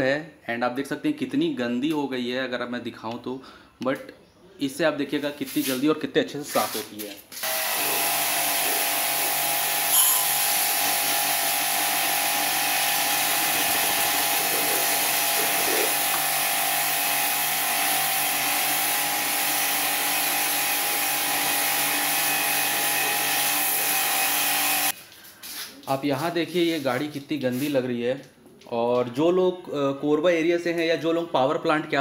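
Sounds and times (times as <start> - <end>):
pressure washer motor humming: 7.4 - 25.0
water jet hissing on metal: 7.4 - 25.7.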